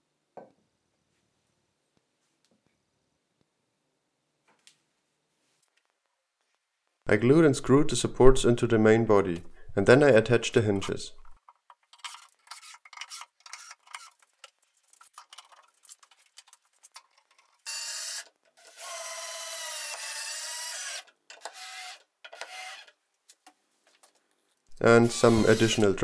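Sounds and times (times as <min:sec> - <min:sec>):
cordless drill driving screws: 0:17.7 - 0:22.9, 0:25.0 - 0:26.0.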